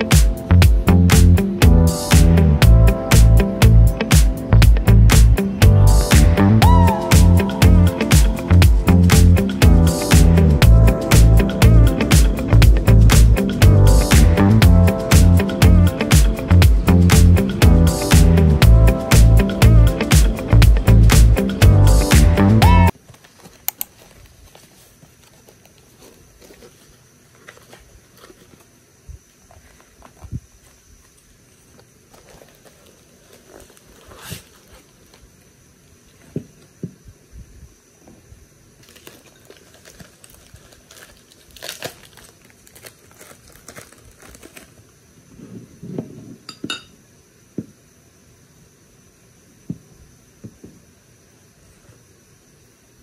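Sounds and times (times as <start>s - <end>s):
background music: 0.0s - 22.9s
cardboard parcels handled: 23.0s - 28.7s, 31.6s - 35.3s
paper wrapping rustling: 23.0s - 28.7s, 31.5s - 35.3s, 38.8s - 44.9s
ceramic clinks: 46.5s - 46.9s.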